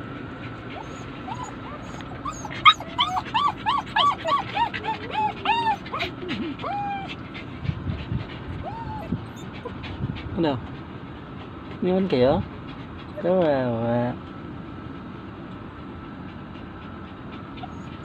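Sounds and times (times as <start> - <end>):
dog whining: 0.5 - 10.3, 16.9 - 18.0.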